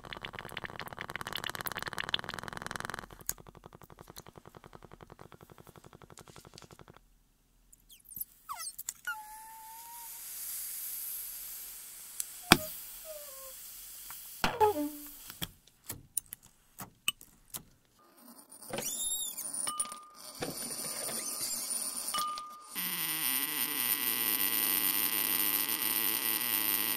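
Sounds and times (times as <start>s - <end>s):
dry ice bubbling in water: 0.0s - 3.4s
ice squeaking against metal: 7.9s - 10.1s, 14.4s - 15.2s, 18.7s - 24.3s
dry ice fizzing hiss: 9.1s - 15.5s.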